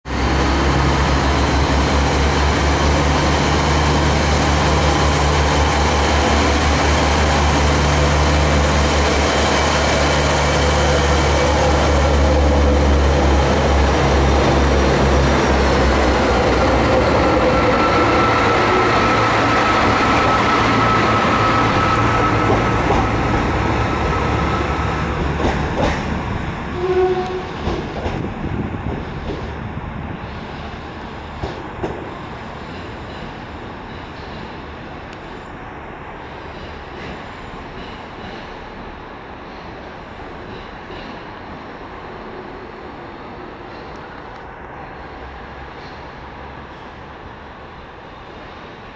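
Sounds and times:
diesel train engines droning: 0:00.1 - 0:48.9.

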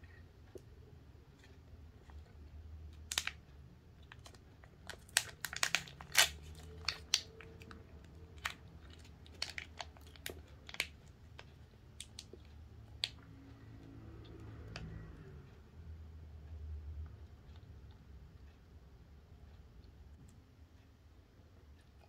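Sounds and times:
candy wrapper crinkling: 0:03.0 - 0:03.4, 0:04.0 - 0:11.1.

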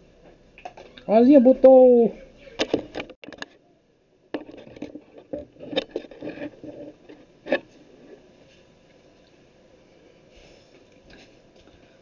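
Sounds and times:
pump parts clicking and scraping: 0:02.6 - 0:03.6, 0:04.4 - 0:08.2.

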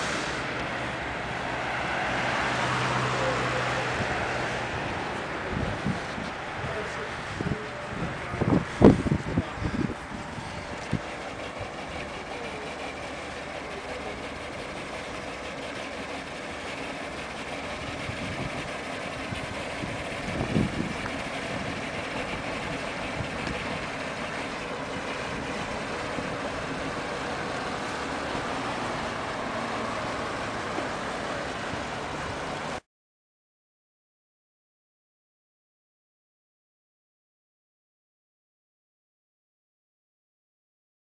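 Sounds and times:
street noise: 0:00.0 - 0:32.8
truck engine idling: 0:00.0 - 0:32.8.

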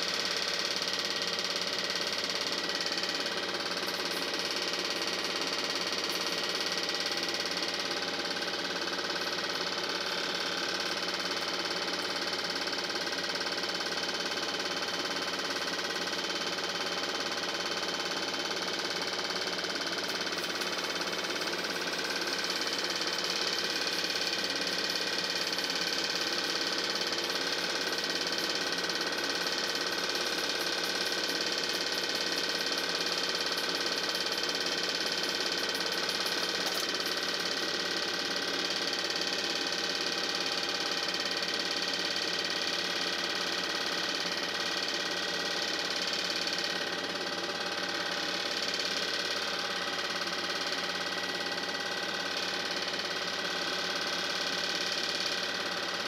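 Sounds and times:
film projector whirring and clattering: 0:00.0 - 0:56.0.

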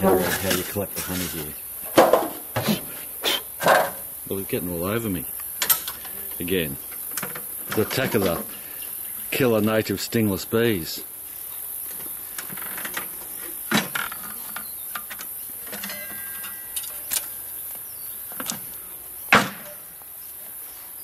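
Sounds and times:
wooden boxes knocking and scraping: 0:00.0 - 0:04.1
high hiss of insects: 0:00.2 - 0:15.9, 0:17.0 - 0:21.0.

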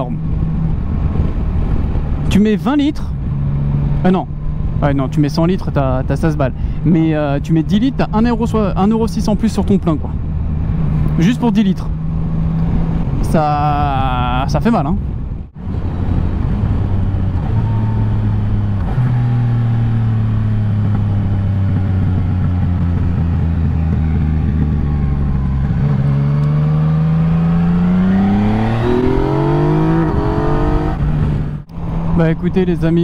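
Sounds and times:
motorcycle engine revving: 0:15.6 - 0:32.1.

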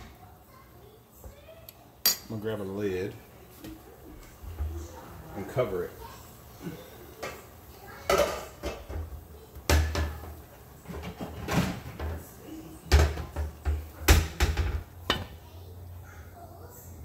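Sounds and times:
cookware and cupboard doors banging: 0:08.0 - 0:15.4.

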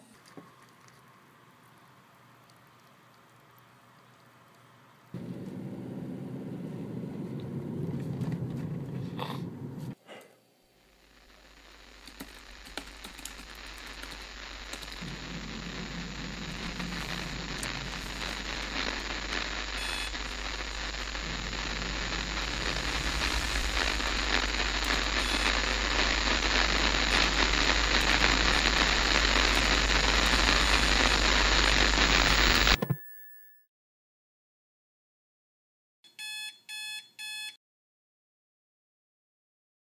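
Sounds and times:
low hum: 0:05.2 - 0:10.0, 0:13.6 - 0:33.6
steady hiss: 0:11.0 - 0:33.0
short beep: 0:32.1 - 0:33.7.

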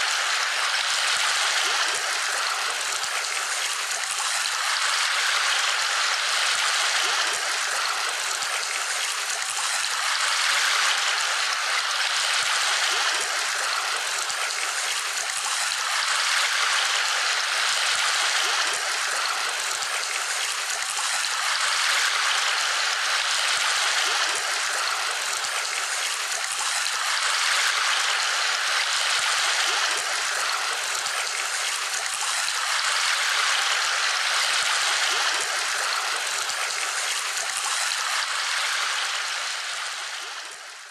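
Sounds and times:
running water rushing: 0:00.0 - 0:40.9.

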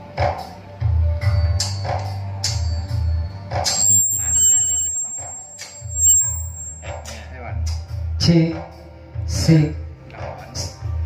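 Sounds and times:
music through pa system: 0:03.6 - 0:07.0
sharp percussion hits: 0:03.6 - 0:07.0
pulsing bass line: 0:03.8 - 0:06.9.

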